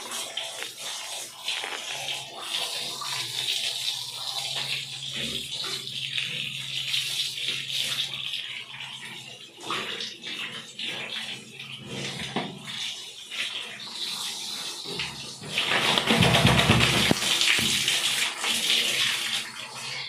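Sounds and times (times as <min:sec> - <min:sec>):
shower hose spraying water: 0:00.0 - 0:08.6, 0:09.2 - 0:20.0.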